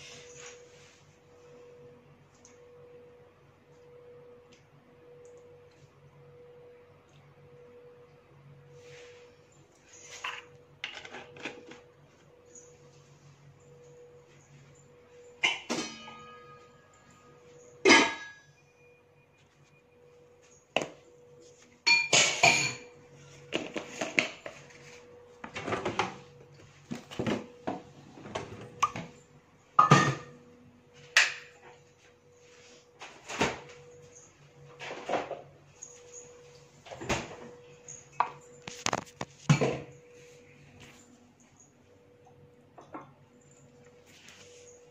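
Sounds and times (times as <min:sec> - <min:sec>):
faint steady hum: 0:00.0 - 0:44.9
kitchenware clattering: 0:17.8 - 0:18.4, 0:21.8 - 0:23.0, 0:29.8 - 0:30.4.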